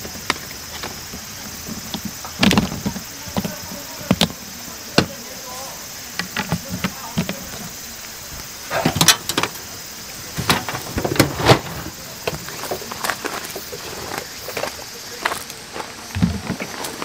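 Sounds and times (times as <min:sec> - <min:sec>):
camping gear knocks and clatters: 0:00.0 - 0:05.2, 0:06.1 - 0:07.8, 0:08.7 - 0:09.6, 0:10.3 - 0:14.3, 0:16.1 - 0:17.0.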